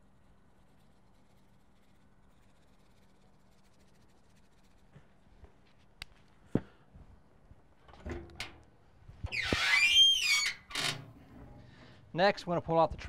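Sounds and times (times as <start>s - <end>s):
sharp knocks and handling clatter: 7.8s - 9.3s
door hinges squealing: 9.2s - 11.2s.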